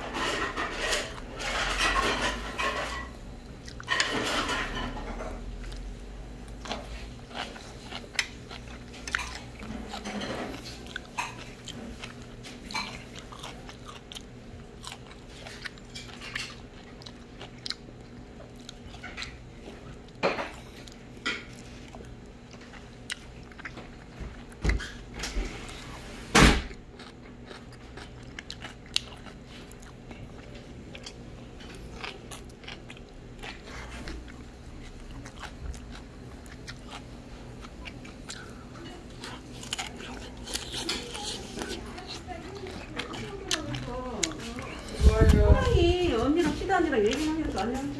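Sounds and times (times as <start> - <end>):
person chewing and crunching food: 0.0 - 47.9.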